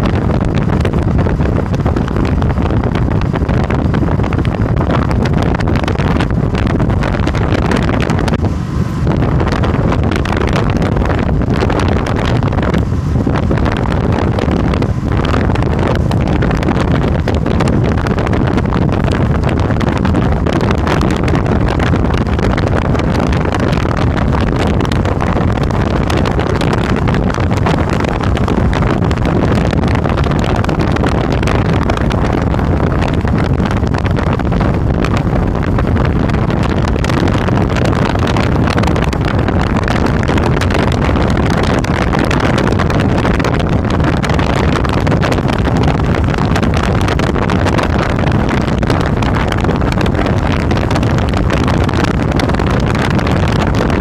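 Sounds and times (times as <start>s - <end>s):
motorcycle engine cruising: 0.0s - 54.0s
wind on microphone: 0.0s - 54.0s.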